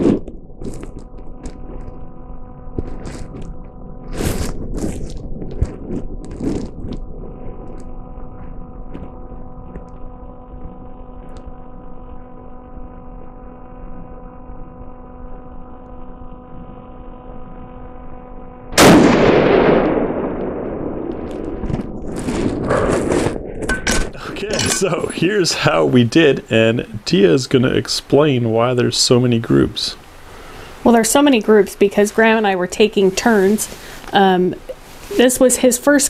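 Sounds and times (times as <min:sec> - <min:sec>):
steady hum: 0:00.0 - 0:36.0
rifle shot: 0:18.8 - 0:24.1.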